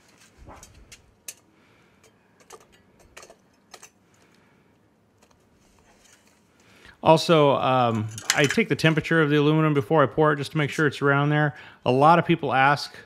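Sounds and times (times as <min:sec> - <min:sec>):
steel tongs clicking on metal: 0:00.9 - 0:04.0.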